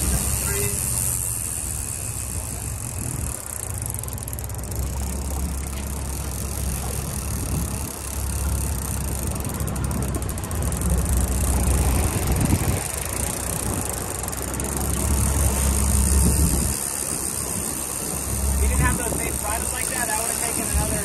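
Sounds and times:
water rushing along hull: 0.0s - 21.0s
wind buffeting microphone: 10.9s - 21.0s.

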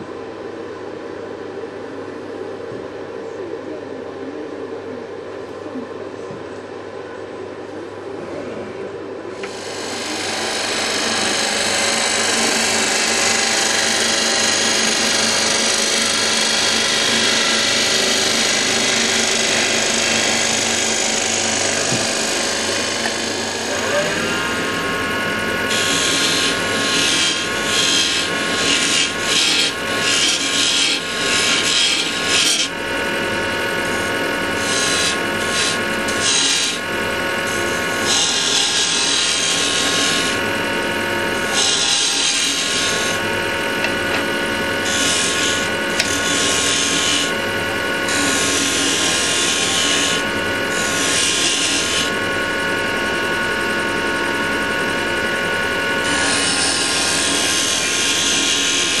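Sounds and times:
chisel scraping spinning wood: 9.4s - 24.8s, 25.6s - 32.9s, 33.8s - 40.4s, 41.3s - 47.4s, 48.1s - 52.2s, 56.0s - 59.0s
wood lathe humming: 9.4s - 59.0s.

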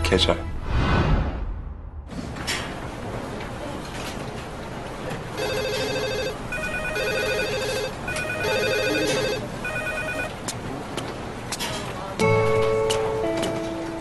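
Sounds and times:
desk telephones ringing: 5.4s - 10.4s.

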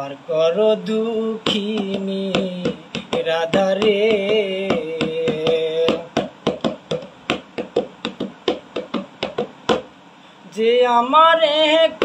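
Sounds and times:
man singing: 0.0s - 9.0s, 10.4s - 12.0s
hand-tapped percussion: 1.4s - 9.9s.

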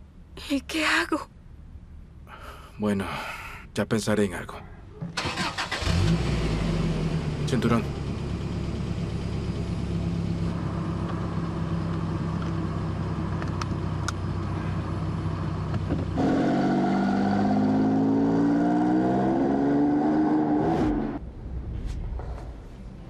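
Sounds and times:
car engine idling: 5.1s - 16.2s
car engine accelerating: 5.2s - 21.2s.

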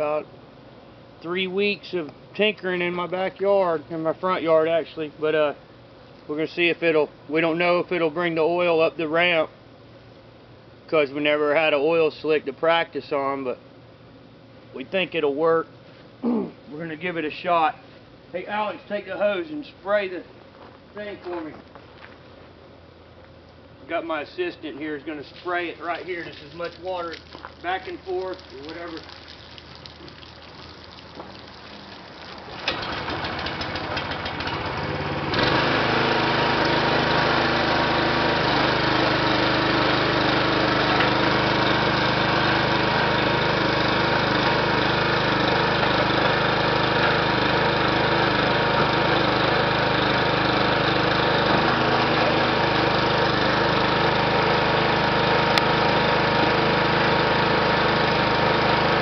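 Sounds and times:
garden hose spraying water: 24.3s - 59.0s
small gasoline engine running: 31.1s - 59.0s.

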